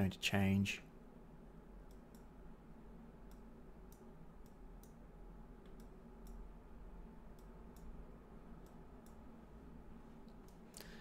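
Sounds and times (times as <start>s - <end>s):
low room hum: 0.0s - 11.0s
computer mouse clicks: 1.9s - 2.3s, 3.2s - 5.0s, 5.6s - 6.4s, 7.3s - 7.9s, 8.6s - 9.2s.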